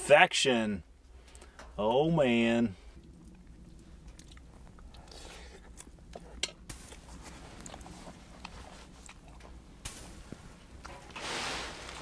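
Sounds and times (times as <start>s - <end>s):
man chewing crispy food: 3.0s - 11.0s.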